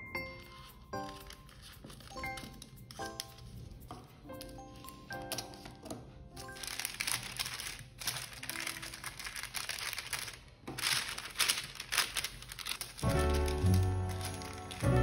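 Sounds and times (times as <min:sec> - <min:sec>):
background music: 0:00.0 - 0:09.3, 0:13.0 - 0:15.0
baking paper crinkling: 0:01.0 - 0:03.6, 0:04.4 - 0:15.0.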